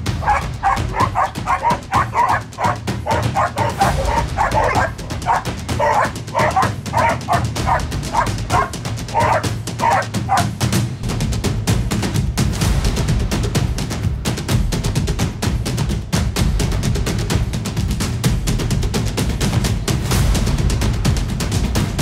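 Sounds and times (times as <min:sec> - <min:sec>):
background music with low beat: 0:00.0 - 0:22.0
dog barking: 0:00.2 - 0:10.5.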